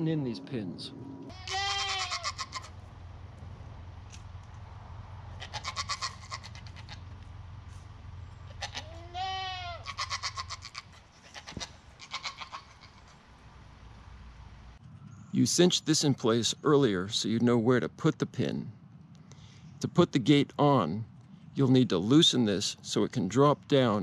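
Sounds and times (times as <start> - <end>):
low steady hum: 0.0 - 24.0
goats bleating: 1.3 - 2.7, 5.3 - 7.1, 8.5 - 12.8.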